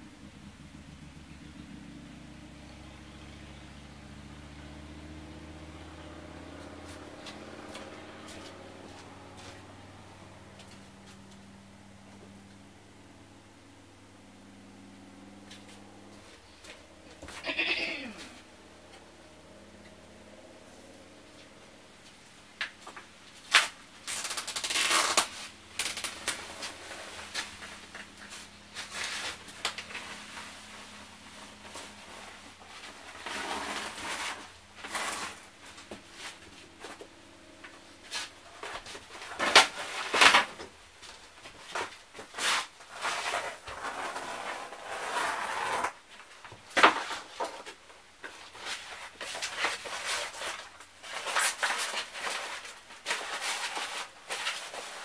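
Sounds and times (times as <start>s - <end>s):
linoleum scraping and tearing: 22.9s - 55.0s.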